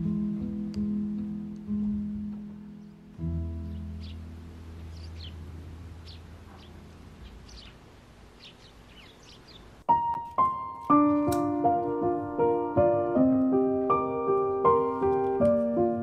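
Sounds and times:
soft piano music: 0.0 - 16.0
sparrows chirping: 2.6 - 9.9.

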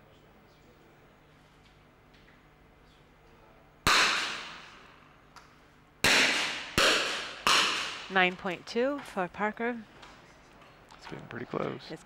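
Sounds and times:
rifle shots echoing: 6.0 - 8.1.

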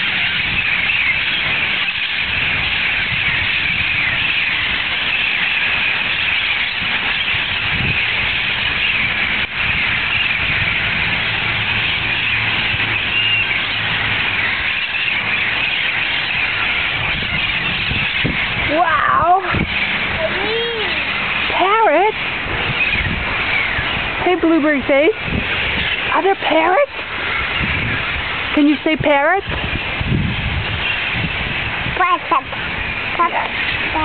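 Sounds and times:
parrots screeching: 0.0 - 24.1.

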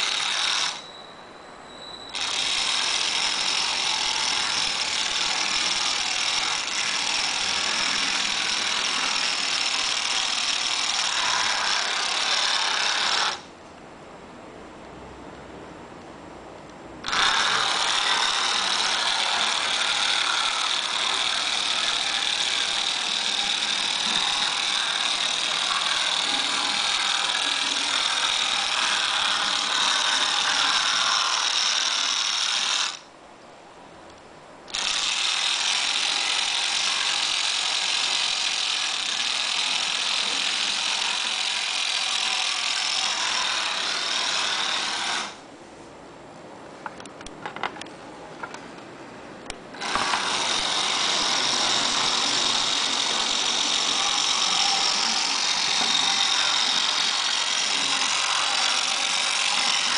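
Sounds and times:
electric motor and gears whining: 0.0 - 0.9, 2.1 - 13.5, 17.0 - 33.0, 34.7 - 45.4, 49.7 - 59.9.

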